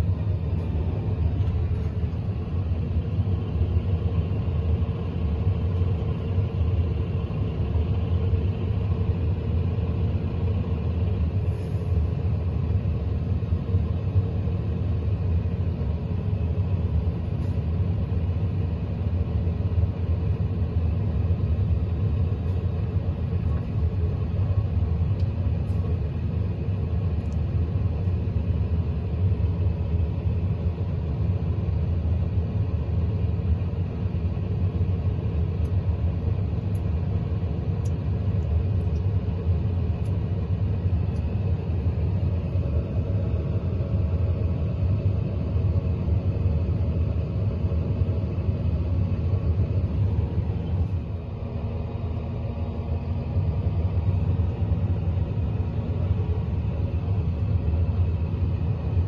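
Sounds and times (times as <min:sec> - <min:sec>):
tractor engine running: 0:00.0 - 0:14.3.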